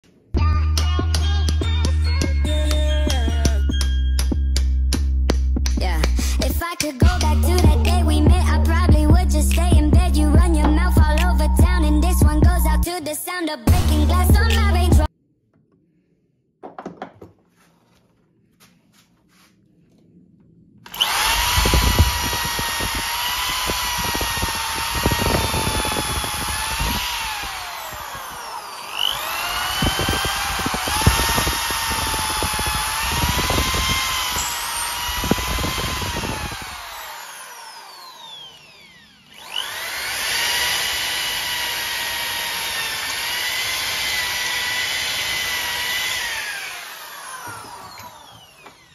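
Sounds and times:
drill bit knocking in wood: 0:16.6 - 0:17.4, 0:20.9 - 0:38.2, 0:39.3 - 0:48.9
electric drill whining: 0:20.8 - 0:48.9.

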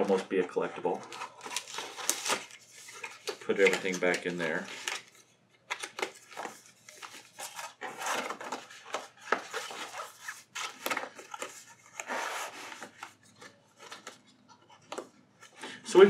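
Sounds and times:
cardboard and paper rustling: 0:00.0 - 0:15.6.

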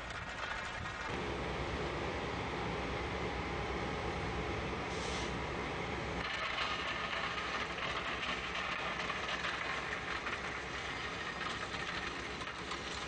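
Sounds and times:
conveyor belt rattling: 0:00.0 - 0:13.0
heavy machinery humming: 0:01.0 - 0:13.0
gravel pouring into funnel: 0:06.2 - 0:13.0.

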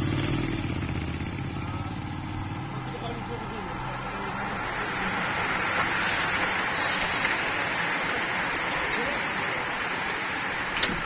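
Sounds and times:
whirring bicycle drivetrains: 0:03.9 - 0:11.0
bicycle tyres hissing on asphalt: 0:04.2 - 0:10.7.

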